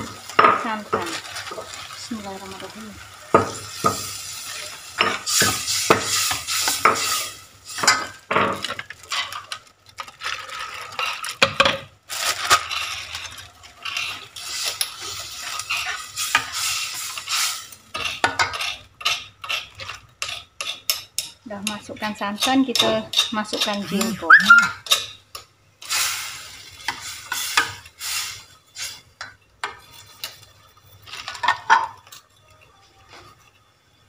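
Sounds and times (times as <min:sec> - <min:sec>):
ladle scraping and clinking pot: 0:12.6 - 0:25.4.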